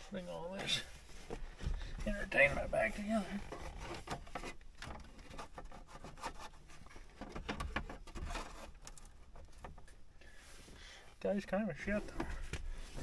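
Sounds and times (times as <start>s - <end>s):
rubbing and scraping of trim: 0.6s - 10.0s.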